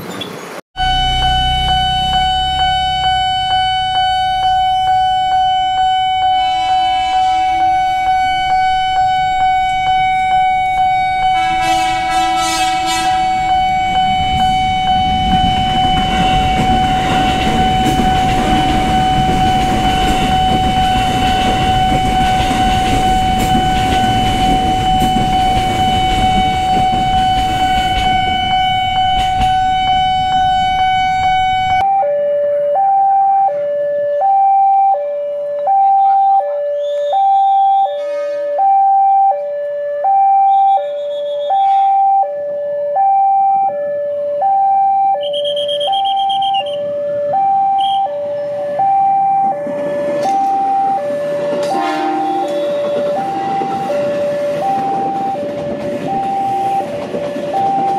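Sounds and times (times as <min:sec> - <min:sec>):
train rumbling over rails: 0:00.0 - 0:31.8, 0:45.2 - 0:57.9
train horn: 0:00.8 - 0:31.8, 0:36.0 - 0:38.8, 0:40.5 - 0:42.2, 0:49.5 - 0:57.9
crossing warning bell: 0:00.8 - 0:32.2, 0:44.4 - 0:57.9
two-tone crossing alarm: 0:00.8 - 0:57.9.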